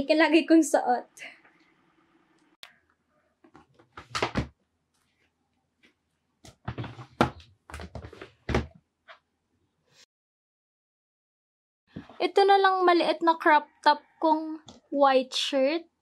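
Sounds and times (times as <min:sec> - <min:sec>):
clothes shuffling: 0:05.0 - 0:08.7
plastic drawer scraping open: 0:06.6 - 0:08.7.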